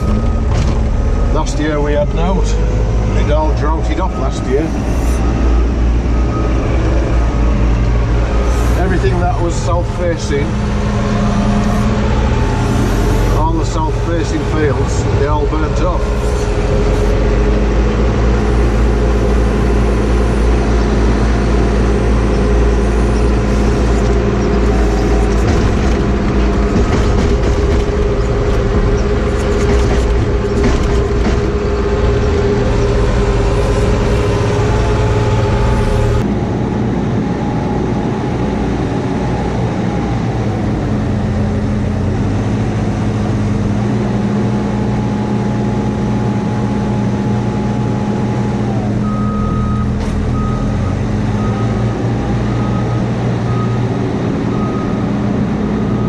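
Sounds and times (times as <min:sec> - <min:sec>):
diesel engine humming whine: 0:00.0 - 0:56.0
lighter engine noise outdoors: 0:11.1 - 0:25.5.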